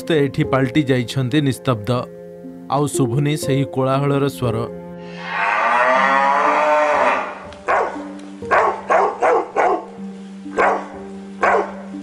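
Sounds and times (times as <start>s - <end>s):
soft background music: 0.0s - 12.0s
cow mooing: 5.0s - 9.4s
dog barking: 7.7s - 9.9s, 10.5s - 11.9s.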